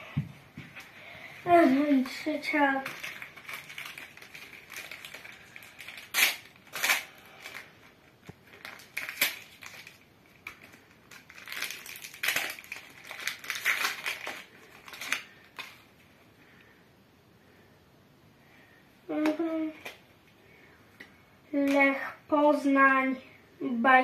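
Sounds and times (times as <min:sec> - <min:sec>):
foil packet crinkling: 0:01.6 - 0:16.1.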